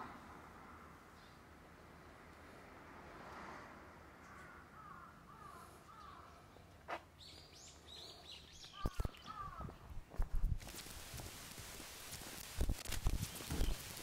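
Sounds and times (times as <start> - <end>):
bird calls: 4.2 - 10.0, 13.2 - 14.0
high bird chirps: 7.3 - 9.7.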